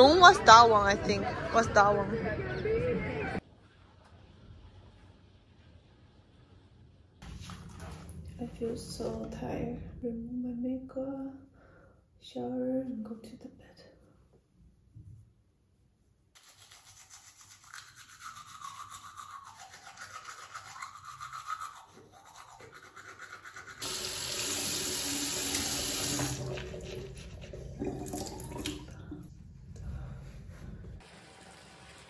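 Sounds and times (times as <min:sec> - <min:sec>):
toothbrush scrubbing teeth: 0:16.4 - 0:24.2, 0:26.1 - 0:28.5
tap running loudly: 0:23.8 - 0:29.0
bath tap running into tub: 0:23.8 - 0:29.3.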